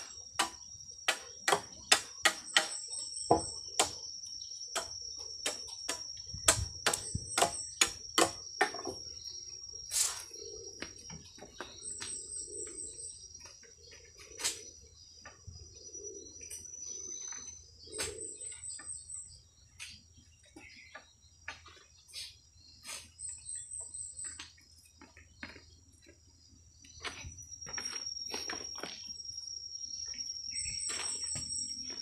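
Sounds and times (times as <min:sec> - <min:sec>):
machete chopping bamboo: 0:00.0 - 0:04.0, 0:04.8 - 0:09.0
insects droning: 0:00.0 - 0:32.0
doves cooing: 0:10.1 - 0:14.5.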